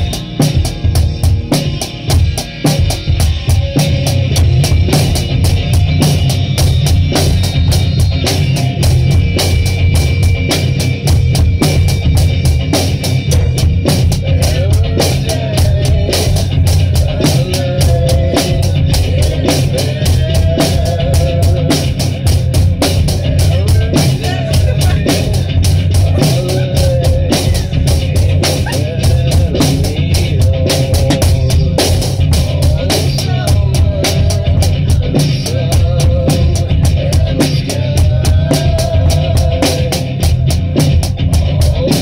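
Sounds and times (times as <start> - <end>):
drum kit hits: 0.0 - 42.0
hardcore rock band playing: 0.0 - 42.0
person singing: 13.3 - 42.0.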